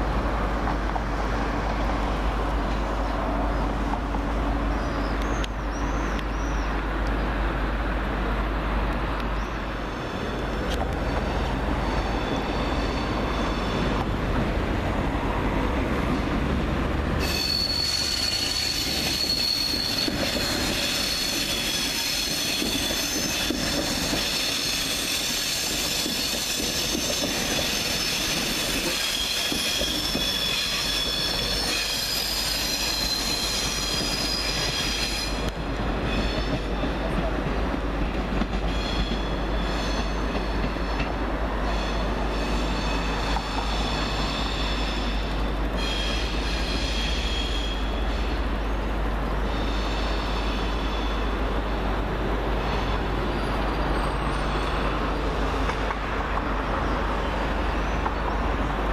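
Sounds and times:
rail rumble: 0.0s - 58.9s
train wheels squealing: 4.7s - 6.8s, 9.3s - 14.0s, 17.2s - 37.3s, 38.4s - 48.8s, 49.4s - 51.5s, 52.5s - 55.7s, 56.8s - 58.4s.

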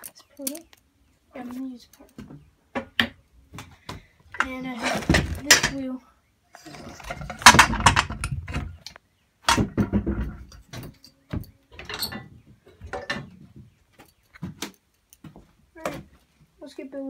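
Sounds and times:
metal parts clicking and rattling: 0.0s - 0.8s, 6.7s - 9.0s.

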